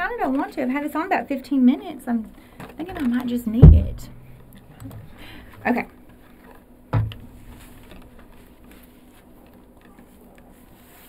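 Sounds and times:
sharp thump: 0:03.6 - 0:04.4, 0:07.0 - 0:07.4
wig rustling: 0:06.1 - 0:11.0.

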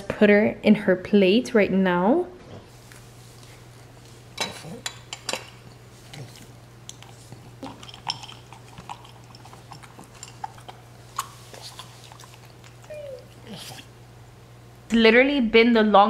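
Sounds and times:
dog chewing and licking: 0:02.9 - 0:14.0
food clinking against ceramic bowl: 0:07.6 - 0:10.6.

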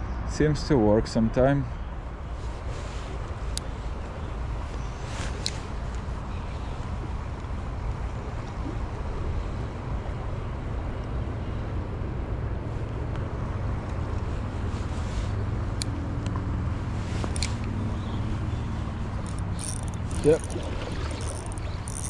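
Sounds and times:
river water rushing: 0:19.3 - 0:22.0.

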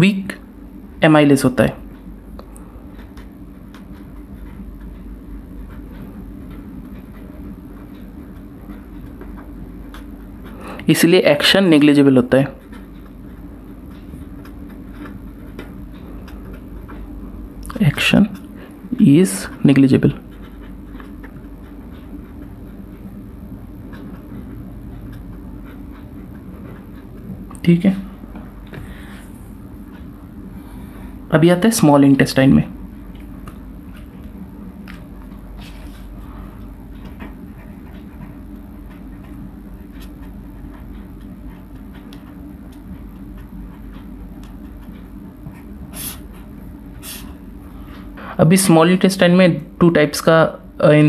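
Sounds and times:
low rumble and hum: 0:00.0 - 0:51.0
marker pen scratching on paper: 0:33.2 - 0:47.4.

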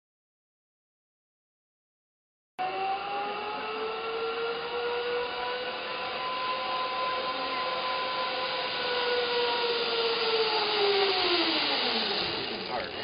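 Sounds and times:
zipline pulleys whining on cable: 0:02.6 - 0:13.0.

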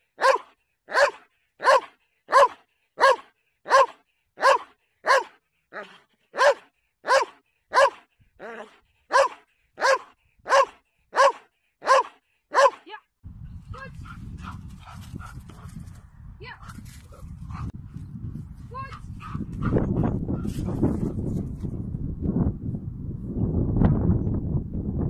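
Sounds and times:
dog barking sharply: 0:00.2 - 0:08.0, 0:09.1 - 0:12.9
wind rumble on microphone: 0:13.2 - 0:25.0.

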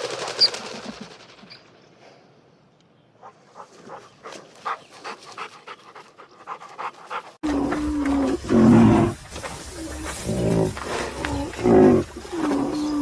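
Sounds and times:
pheasants calling: 0:07.4 - 0:13.0
rhinoceros calling: 0:07.4 - 0:13.0.

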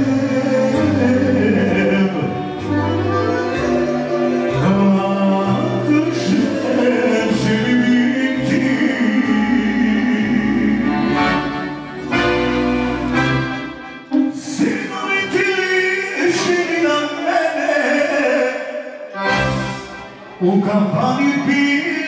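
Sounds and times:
man singing into microphone: 0:00.0 - 0:02.8, 0:04.4 - 0:11.6, 0:14.3 - 0:19.2, 0:20.3 - 0:22.0
folk band playing: 0:00.0 - 0:18.0, 0:19.1 - 0:22.0
accordion: 0:00.0 - 0:22.0.

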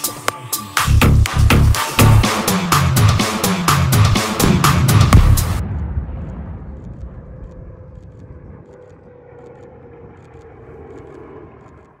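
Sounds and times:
low outdoor rumble: 0:04.4 - 0:12.0
faint airplane engine drone: 0:05.6 - 0:12.0.

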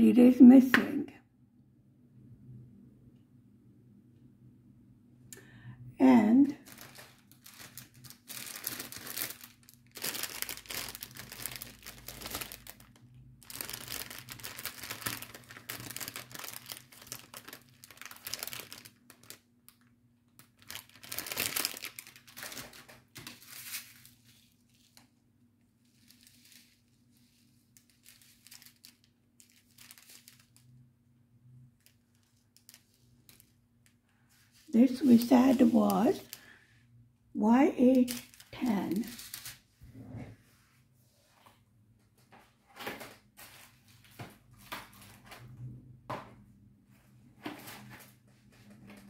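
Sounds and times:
packaging crinkling and rustling: 0:06.5 - 0:25.2, 0:25.8 - 0:30.9, 0:31.6 - 0:36.6, 0:37.8 - 0:39.7, 0:42.4 - 0:45.5.

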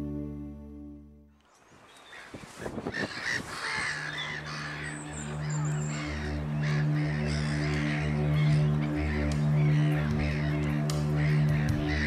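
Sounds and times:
low musical drone: 0:00.0 - 0:01.4, 0:03.9 - 0:12.0
gulls calling: 0:01.6 - 0:12.0.

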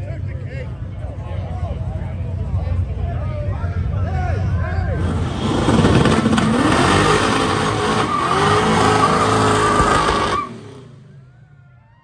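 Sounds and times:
car engine revving: 0:05.0 - 0:11.0.

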